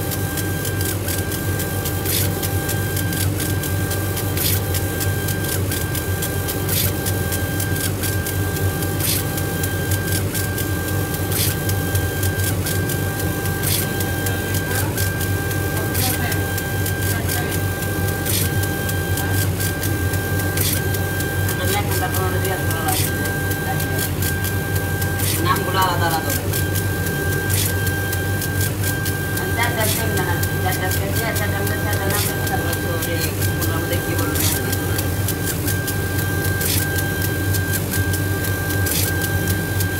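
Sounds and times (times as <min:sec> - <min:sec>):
low machine hum: 0:00.0 - 0:39.9
whining motor: 0:00.0 - 0:39.9.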